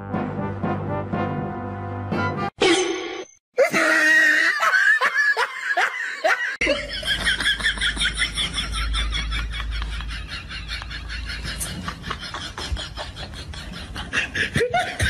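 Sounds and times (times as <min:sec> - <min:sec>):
person laughing: 0:03.6 - 0:15.0
low hum: 0:07.2 - 0:12.8.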